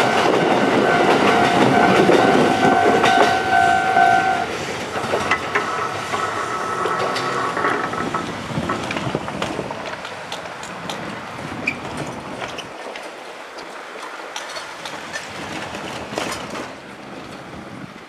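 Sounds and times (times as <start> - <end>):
electric train rumbling past: 0.0 - 12.8
wheels clicking over rail joints: 0.0 - 18.0.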